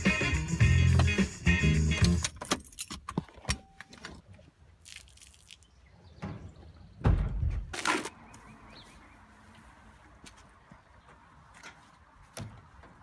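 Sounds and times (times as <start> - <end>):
loud low thump: 7.0 - 7.7.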